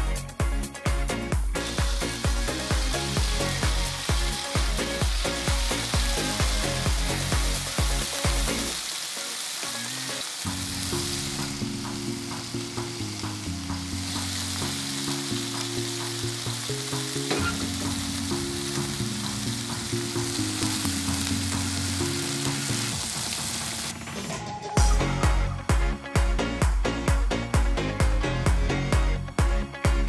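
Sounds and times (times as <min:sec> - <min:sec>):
background music with low notes: 0:00.0 - 0:30.0
chicken sizzling on grill pan: 0:01.6 - 0:23.9.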